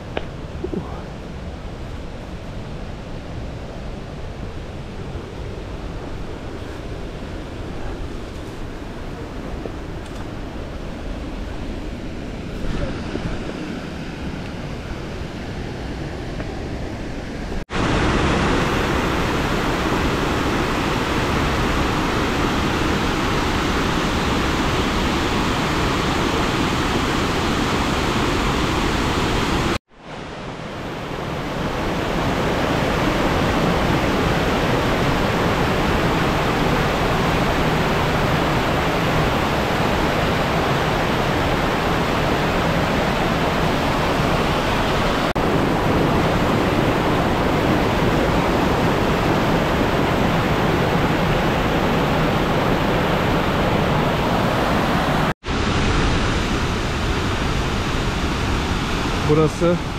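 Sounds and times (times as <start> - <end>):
waterfall rushing: 17.6 - 59.9.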